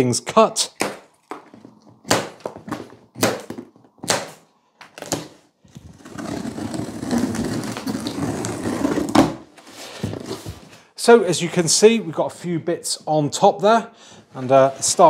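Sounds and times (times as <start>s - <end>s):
cardboard scraping and rustling: 5.0s - 10.8s.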